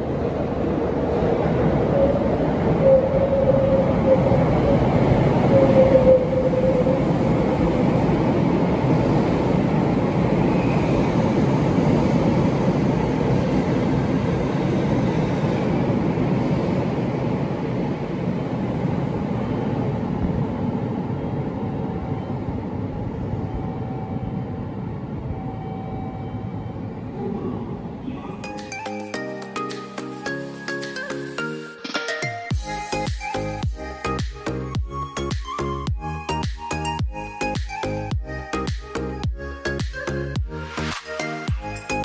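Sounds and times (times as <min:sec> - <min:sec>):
wheels rumbling on rail: 0:00.0 - 0:28.5
electric train passing: 0:00.0 - 0:38.1.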